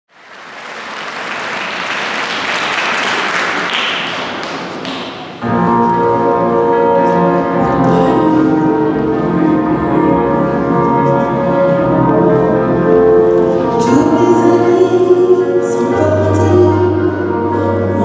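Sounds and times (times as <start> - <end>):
audience applauding: 0.1 - 5.4
instrumental song accompaniment: 5.4 - 18.0.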